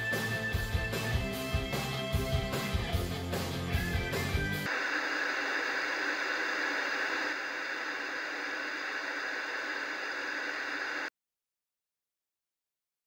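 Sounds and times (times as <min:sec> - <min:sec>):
television static hiss: 0:04.7 - 0:11.1.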